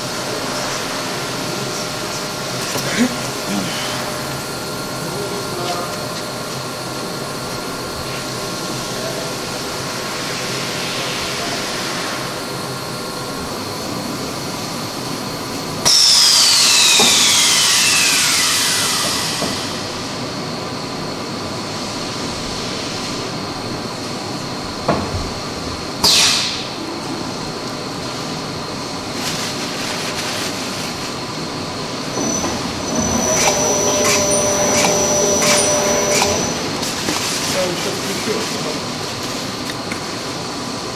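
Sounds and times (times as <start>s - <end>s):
machine humming and whining: 0.0s - 40.9s
loud burst with falling whine: 15.9s - 20.2s, 32.0s - 37.0s.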